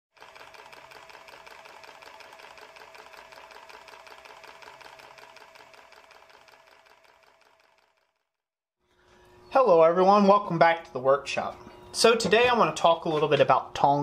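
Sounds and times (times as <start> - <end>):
mechanism ticking clatter: 0.1 - 8.2
steady mechanical hum: 9.0 - 14.0.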